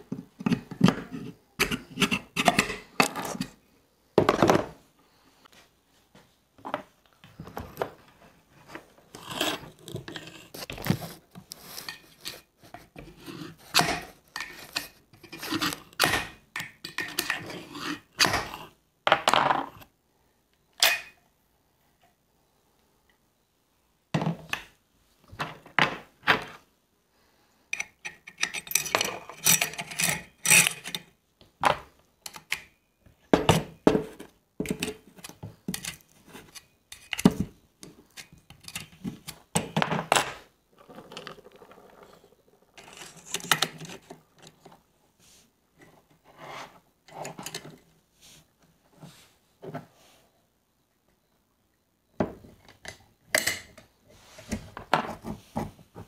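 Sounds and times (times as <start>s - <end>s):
metal rifle parts clicking and scraping: 27.8s - 31.1s, 34.7s - 37.3s, 38.1s - 39.4s, 42.8s - 44.6s.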